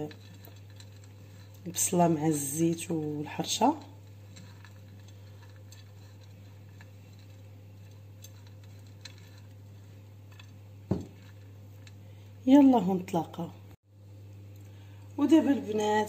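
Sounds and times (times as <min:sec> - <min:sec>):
low steady hum: 0:00.0 - 0:16.0
fingers rubbing food in clay dish: 0:03.9 - 0:11.6.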